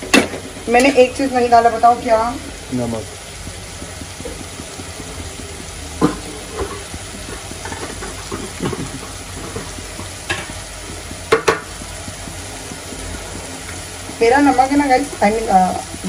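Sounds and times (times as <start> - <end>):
masala sizzling in a metal pan: 0.0 - 16.0
spoon scraping and tapping pan: 3.2 - 16.0.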